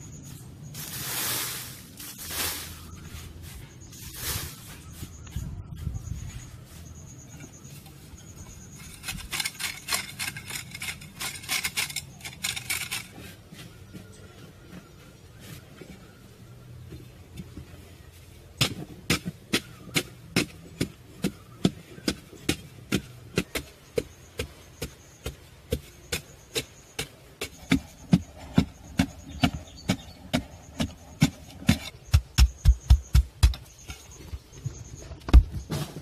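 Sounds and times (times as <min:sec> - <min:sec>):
hand tool striking: 0:22.1 - 0:34.1
dull thuds: 0:35.2 - 0:36.0.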